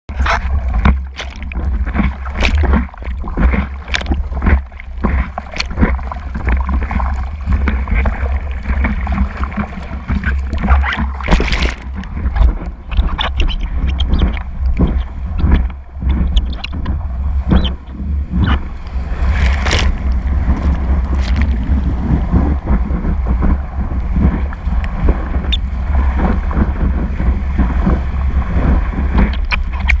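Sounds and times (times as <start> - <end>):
water rushing around surfboard: 0.1 - 30.0
sharp water splashes: 0.2 - 16.8, 18.4 - 22.2
wind buffeting: 0.3 - 30.0.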